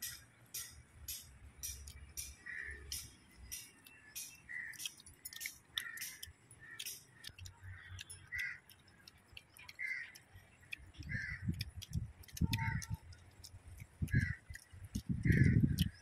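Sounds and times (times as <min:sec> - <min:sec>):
sharp little clicks: 0:00.0 - 0:16.0
crow cawing: 0:02.4 - 0:02.9, 0:05.8 - 0:06.9, 0:07.7 - 0:08.7, 0:09.8 - 0:10.2, 0:11.0 - 0:11.5, 0:12.6 - 0:13.0, 0:14.1 - 0:14.4, 0:15.2 - 0:15.7.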